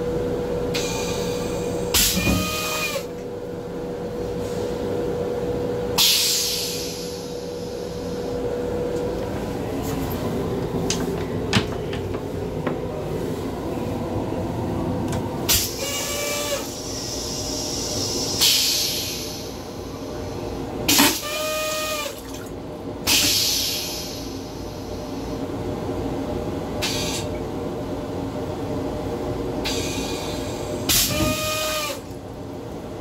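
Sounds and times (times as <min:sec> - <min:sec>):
moving train rumble: 0:00.0 - 0:21.0.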